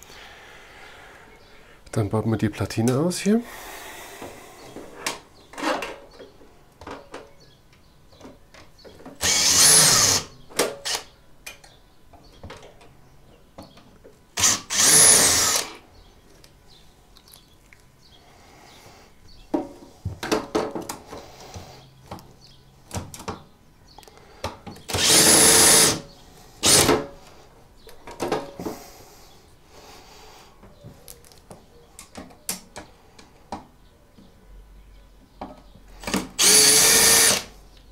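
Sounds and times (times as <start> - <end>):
electric screwdriver motor whine: 9.2 - 10.3, 14.4 - 15.8, 25.0 - 26.0, 36.4 - 37.5.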